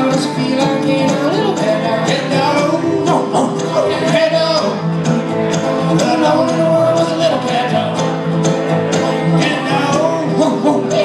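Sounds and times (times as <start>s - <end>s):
mandolin: 0.0s - 11.0s
strummed acoustic guitar: 0.0s - 11.0s
upright bass: 0.0s - 11.0s.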